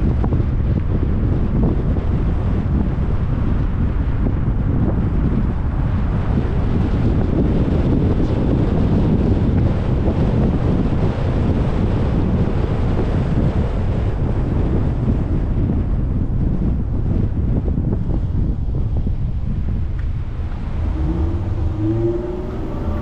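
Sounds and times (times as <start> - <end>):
wind buffeting microphone: 0.0 - 23.0
car road noise: 18.0 - 23.0.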